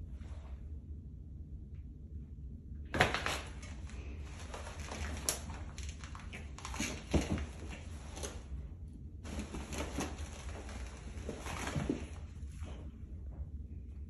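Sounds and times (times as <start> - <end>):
rug rustling and scraping: 9.2 - 12.6.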